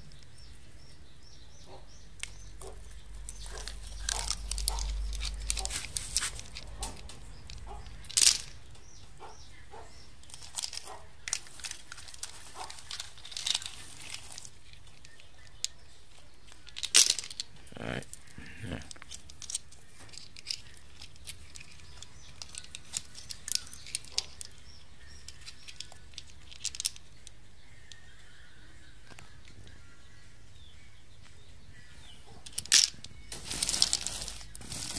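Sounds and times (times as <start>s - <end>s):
dry leaves crinkling and crackling: 2.6s - 8.6s, 10.2s - 17.5s, 32.5s - 34.9s.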